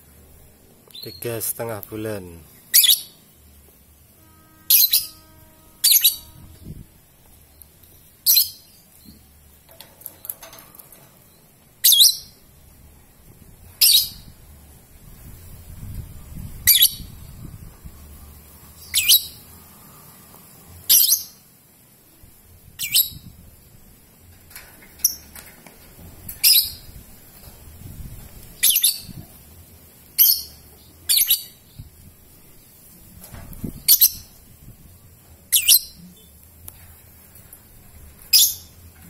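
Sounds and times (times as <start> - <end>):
lovebird shrill calls: 2.7 - 3.1, 4.6 - 6.7, 11.8 - 12.4, 13.8 - 14.3, 16.6 - 17.1, 18.8 - 19.4, 22.8 - 23.2, 28.6 - 29.2, 30.2 - 31.6, 35.5 - 36.0, 38.3 - 38.7.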